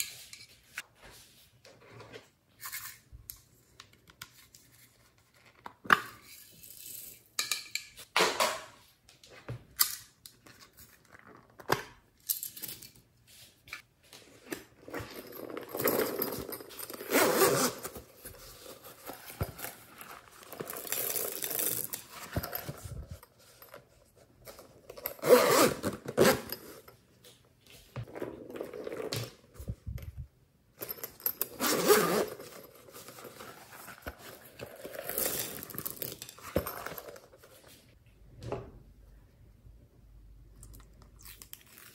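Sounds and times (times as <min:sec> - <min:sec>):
zipper being pulled open: 0:17.0 - 0:18.0, 0:25.1 - 0:26.6, 0:31.6 - 0:32.6.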